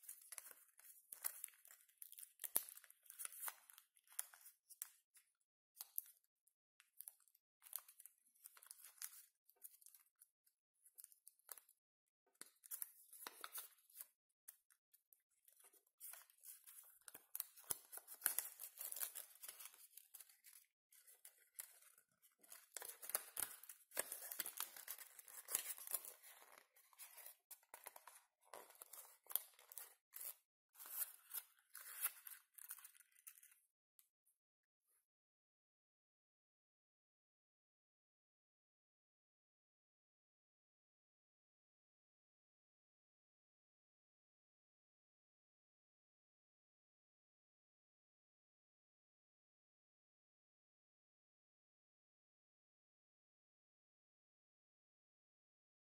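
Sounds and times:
paper rustling and crinkling: 0:15.6 - 0:33.6.

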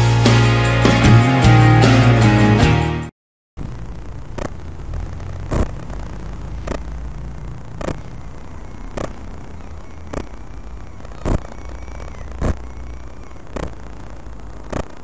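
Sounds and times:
street traffic rumble: 0:03.6 - 0:15.0.

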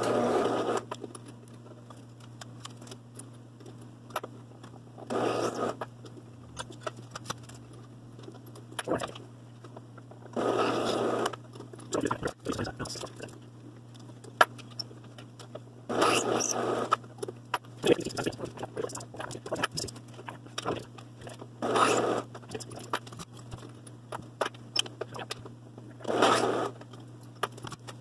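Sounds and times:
drill bit boring into wood: 0:15.9 - 0:16.9, 0:21.6 - 0:22.2, 0:26.1 - 0:26.7
drill press motor humming: 0:15.9 - 0:17.0, 0:20.6 - 0:23.0, 0:26.0 - 0:26.8.

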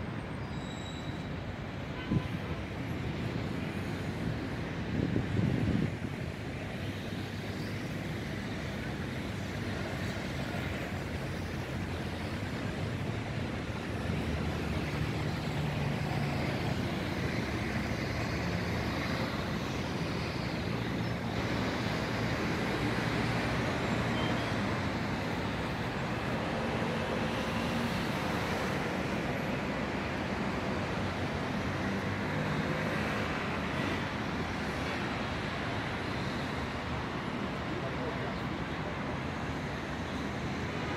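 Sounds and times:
road traffic hum: 0:00.0 - 0:40.9.

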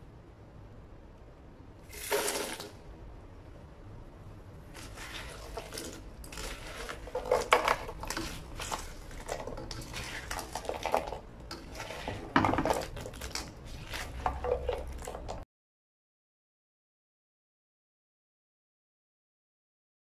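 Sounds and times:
spatula scraping against wok: 0:04.7 - 0:15.4.

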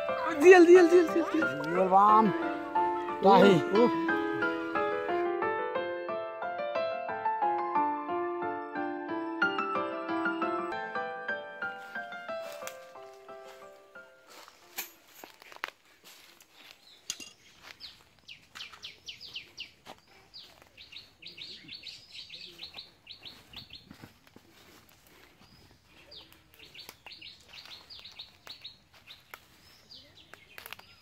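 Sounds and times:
handling clicks and rustles: 0:14.5 - 0:17.7
small birds chirping: 0:15.8 - 0:31.0.

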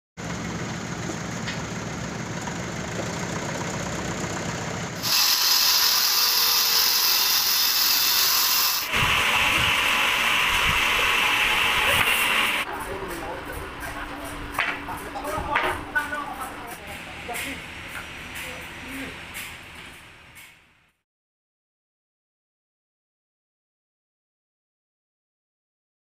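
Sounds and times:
crane engine droning: 0:00.2 - 0:05.0
loud high hiss: 0:05.0 - 0:12.6.

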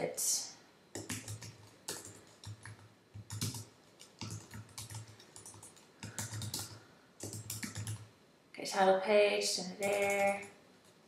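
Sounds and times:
typing on computer keyboard: 0:00.9 - 0:08.1, 0:09.8 - 0:11.0.

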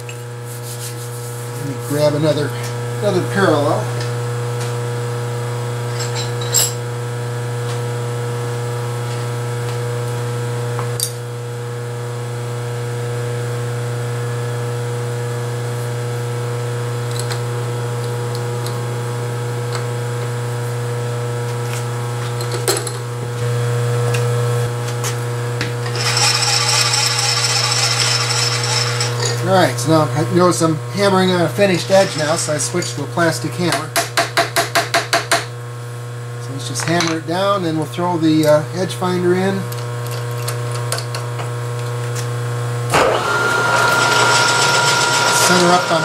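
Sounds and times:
steady shop hum: 0:00.0 - 0:46.0
metal scraping on metal: 0:31.8 - 0:32.9.

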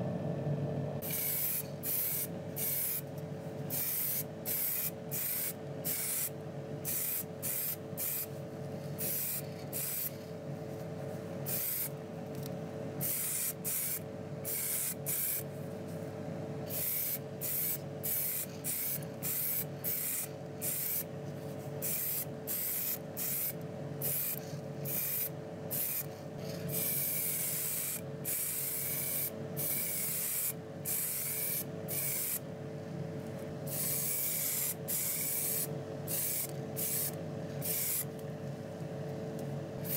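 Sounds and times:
steady hum: 0:00.0 - 0:39.9
paint sprayer hissing: 0:01.0 - 0:03.1, 0:03.7 - 0:10.3, 0:11.5 - 0:11.9, 0:13.0 - 0:15.5, 0:16.7 - 0:21.1, 0:21.8 - 0:32.4, 0:33.7 - 0:38.1.

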